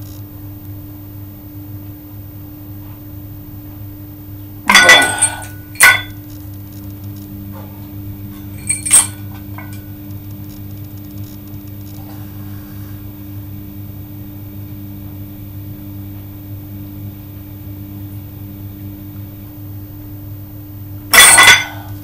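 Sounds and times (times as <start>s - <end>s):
steady low hum: 0.0s - 22.0s
weight plate clanging: 4.7s - 6.2s, 8.6s - 9.8s, 21.2s - 22.0s.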